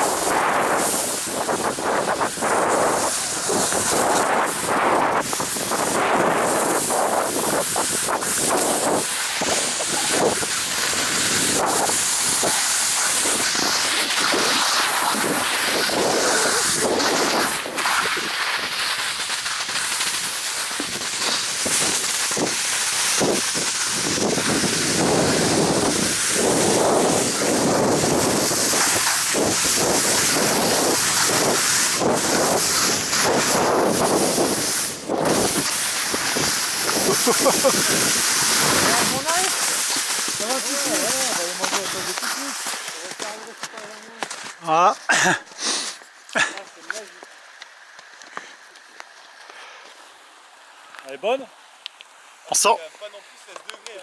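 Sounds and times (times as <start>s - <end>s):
wind on microphone: 0.0s - 18.8s, 20.8s - 43.4s
skis hissing over snow: 0.0s - 54.0s.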